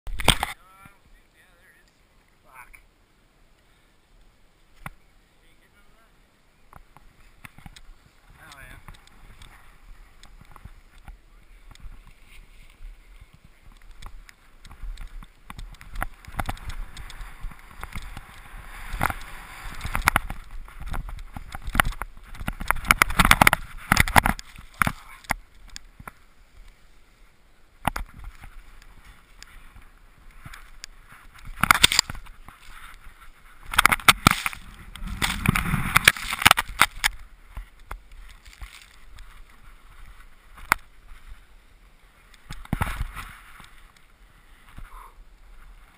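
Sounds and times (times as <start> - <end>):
skis scraping over snow: 7.0 - 27.4, 28.1 - 45.9.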